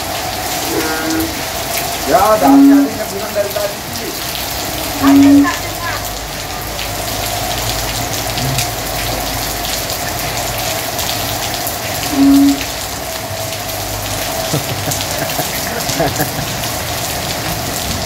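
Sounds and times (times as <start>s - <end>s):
rain on pavement: 0.0s - 18.0s
raindrops striking close by: 0.0s - 18.0s
low-pitched beep: 5.0s - 5.5s, 12.1s - 12.6s.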